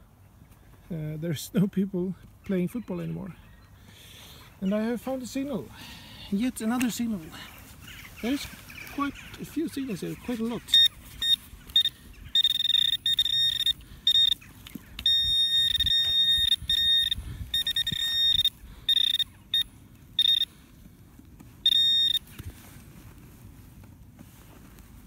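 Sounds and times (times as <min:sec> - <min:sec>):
metal detector beeping: 0:08.3 - 0:20.6, 0:21.6 - 0:22.3.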